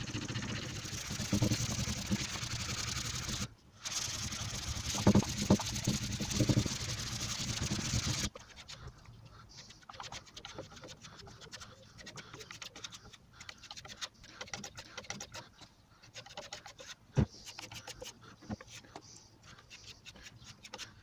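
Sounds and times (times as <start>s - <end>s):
sanding block scratching panel: 0.1s - 8.7s.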